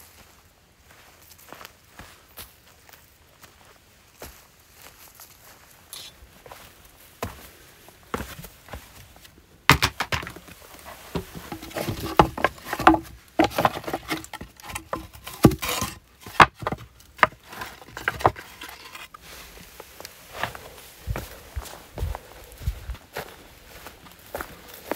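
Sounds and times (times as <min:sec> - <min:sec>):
wood pieces knocking together: 0:09.7 - 0:19.1.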